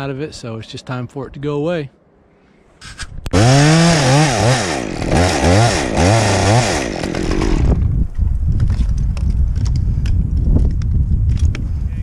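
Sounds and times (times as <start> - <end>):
chainsaw revving: 3.3 - 7.8.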